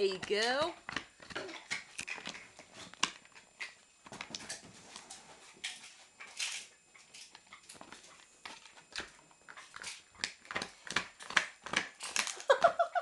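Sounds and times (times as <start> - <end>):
dog crunching a hard chew: 8.9 - 12.6.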